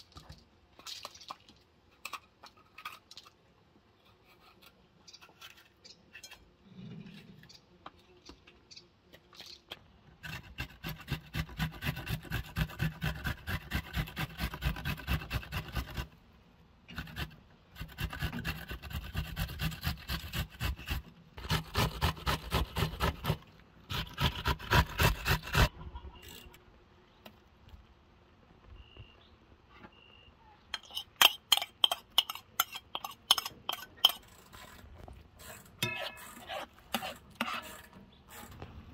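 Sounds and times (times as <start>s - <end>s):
metal spoon scraping a plate: 30.8s - 34.8s, 35.4s - 38.6s
peppers rubbed on metal grater: 35.4s - 38.5s.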